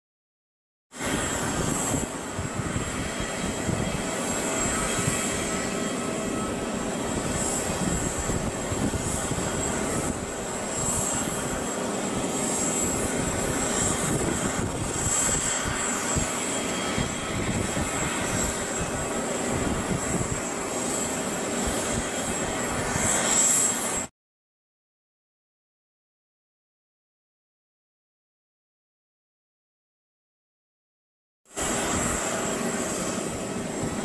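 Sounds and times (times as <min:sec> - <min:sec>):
jet aircraft whine and rumble: 0:00.9 - 0:24.1, 0:31.5 - 0:34.0.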